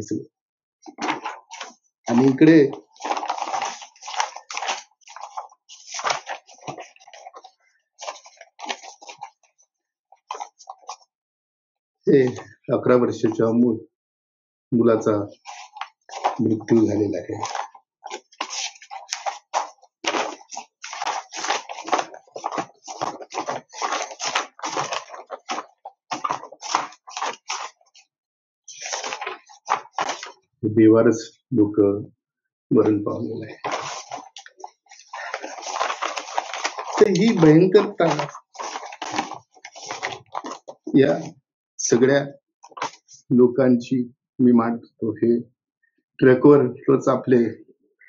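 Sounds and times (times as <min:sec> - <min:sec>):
handling rustling and clicks: 0:00.8 - 0:11.0, 0:15.4 - 0:28.0, 0:28.7 - 0:30.4, 0:33.5 - 0:41.0.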